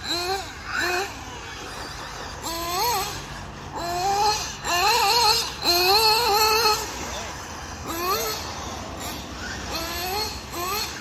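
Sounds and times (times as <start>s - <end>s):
rc car motor revving whine: 0.0s - 11.0s.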